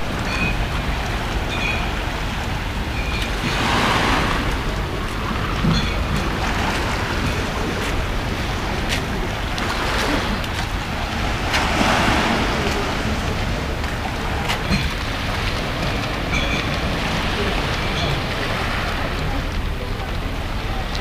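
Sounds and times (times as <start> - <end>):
wind rumbling on microphone: 0.0 - 21.0
small waves on pebble beach: 3.4 - 13.7.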